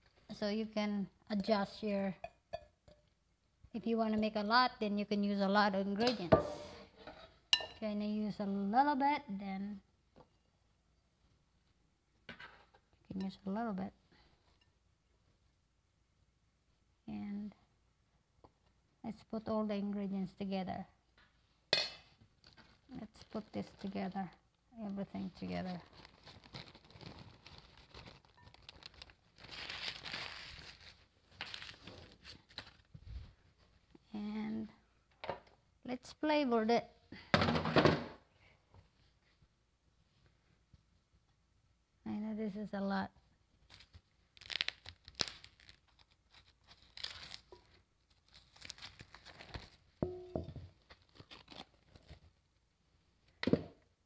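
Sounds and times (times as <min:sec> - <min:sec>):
paper crinkling and rustling: 0:25.6 - 0:32.9, 0:43.6 - 0:49.9, 0:50.8 - 0:52.4.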